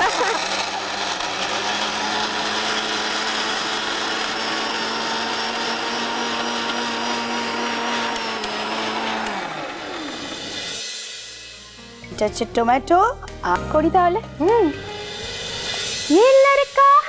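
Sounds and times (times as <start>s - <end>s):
electric mixer grinder running: 0.0s - 11.4s.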